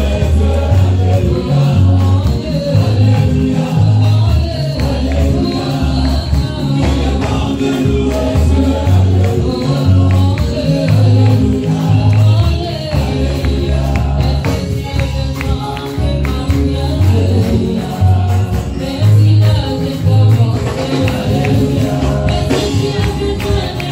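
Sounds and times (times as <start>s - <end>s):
congregation singing with band: 0.0s - 23.9s
low bass line: 0.0s - 23.9s
hand claps: 8.1s - 17.6s.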